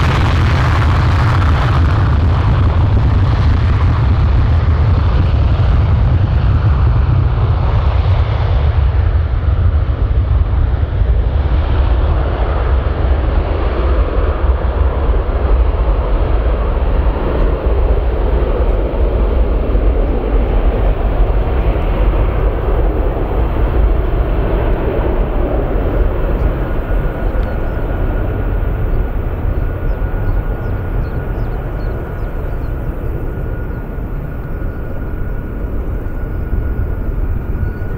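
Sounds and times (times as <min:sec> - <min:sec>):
jet engines at high thrust: 0:00.0 - 0:37.9.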